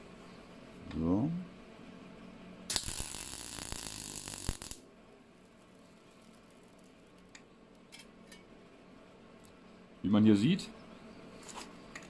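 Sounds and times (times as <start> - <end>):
sharp crack of welder: 2.7 - 4.8
welding arc crackling and sizzling: 2.7 - 7.4.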